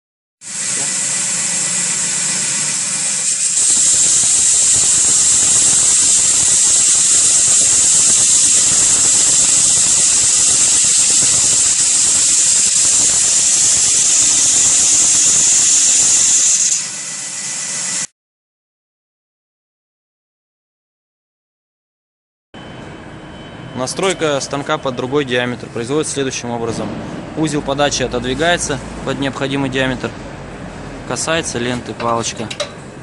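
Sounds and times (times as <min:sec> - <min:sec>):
abrasive belt sanding wood: 0:00.5 - 0:18.1
faint machine whine: 0:22.6 - 0:26.6.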